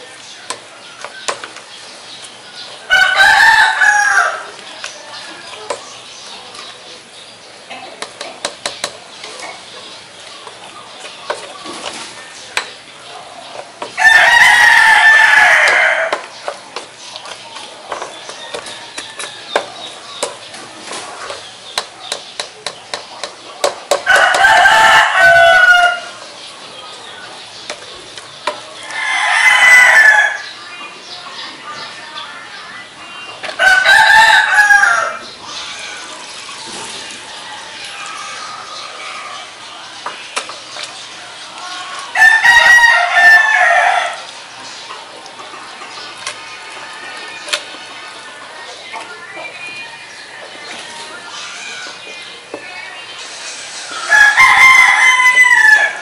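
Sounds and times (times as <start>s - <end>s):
rooster crowing: 2.9s - 4.5s, 14.0s - 16.2s, 24.0s - 26.2s, 28.9s - 30.5s, 33.6s - 36.1s, 42.1s - 44.2s, 54.0s - 56.0s.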